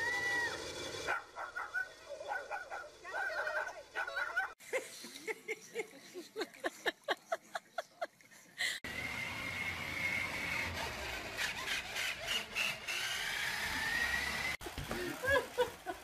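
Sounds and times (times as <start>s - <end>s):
toy motor whine: 0.0s - 1.2s, 8.9s - 14.6s
plastic wheels rumbling on floor: 13.8s - 16.0s.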